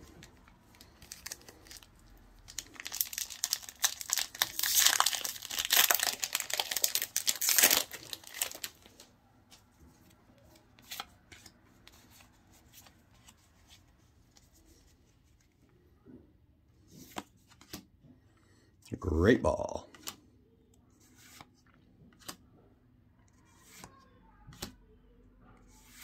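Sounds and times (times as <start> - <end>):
foil wrapper crinkling and tearing: 0.8 - 9.0
cards clicking and rustling: 2.5 - 9.0, 17.0 - 17.9, 19.9 - 20.2, 21.0 - 21.5, 22.1 - 22.4, 23.6 - 23.9.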